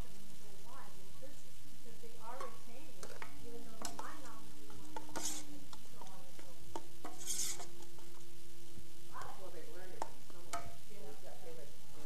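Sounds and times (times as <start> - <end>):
utensil scraping a saucepan: 2.5 - 8.3.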